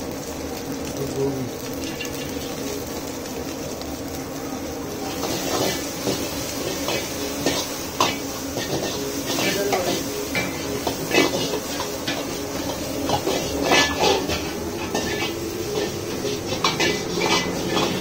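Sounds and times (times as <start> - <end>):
stir-frying sizzle in a wok: 0.0 - 18.0
metal ladle scraping a wok: 10.3 - 18.0.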